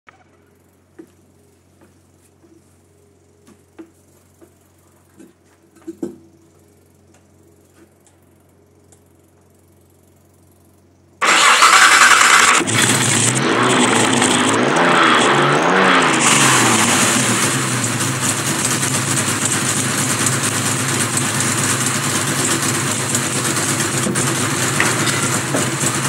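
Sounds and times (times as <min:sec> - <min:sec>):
engine revving with throttle blips: 0:11.2 - 0:26.0.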